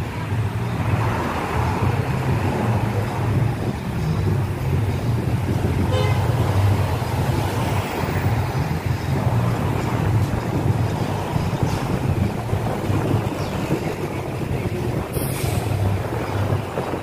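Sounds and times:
street traffic rumble: 0.0 - 17.0
car horn toot: 5.9 - 6.4.

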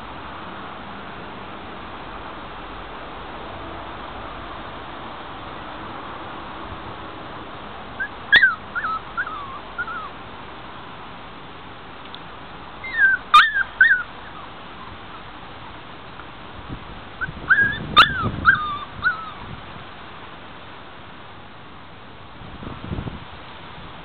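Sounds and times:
steady background hiss: 0.0 - 17.4, 18.4 - 24.0
puppies whimpering and yipping: 8.0 - 10.2, 12.8 - 15.2, 17.2 - 19.5.

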